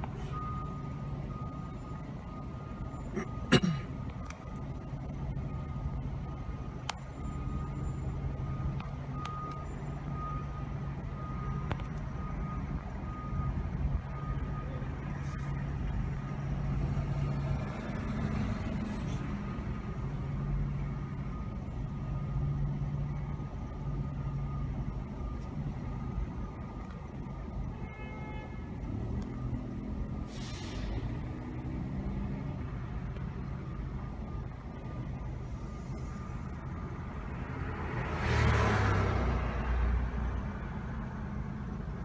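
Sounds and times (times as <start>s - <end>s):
backup alarm beeping: 0.0s - 14.7s.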